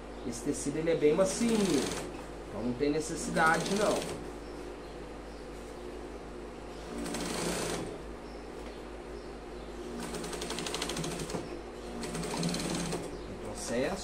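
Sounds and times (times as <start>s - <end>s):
sewing machine stitching: 1.3s - 2.1s, 3.3s - 4.2s, 6.9s - 7.9s, 10.0s - 13.1s.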